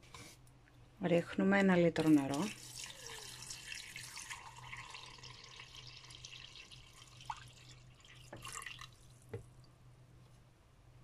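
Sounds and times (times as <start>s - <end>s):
water pouring into a pot: 2.0s - 9.2s.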